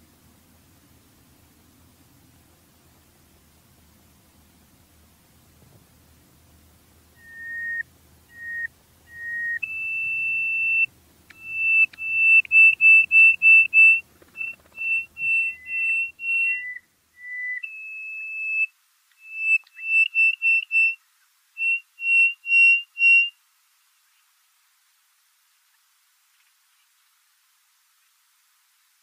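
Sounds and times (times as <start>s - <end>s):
whistled tune: 7.2s - 21.0s, 21.6s - 23.3s.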